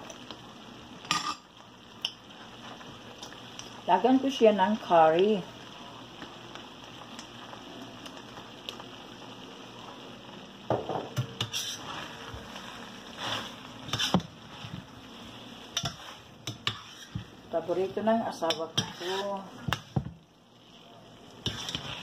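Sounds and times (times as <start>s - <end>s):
food sizzling in a frying pan: 0.0s - 22.0s
metal spoon scraping a pan: 11.4s - 12.0s, 13.2s - 14.3s, 15.7s - 17.3s, 18.4s - 20.0s, 21.4s - 22.0s.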